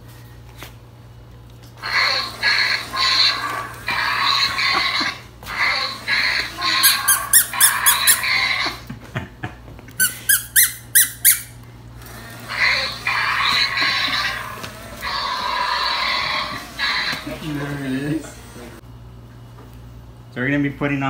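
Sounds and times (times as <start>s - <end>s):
raspy toy creature sound: 1.8s - 8.8s, 12.4s - 17.7s
short high toy squeaks: 10.0s - 11.6s.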